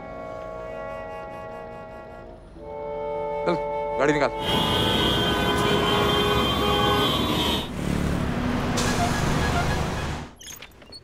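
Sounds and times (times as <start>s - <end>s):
heavy traffic rumble: 0.0s - 10.4s
car horns honking: 2.6s - 7.7s.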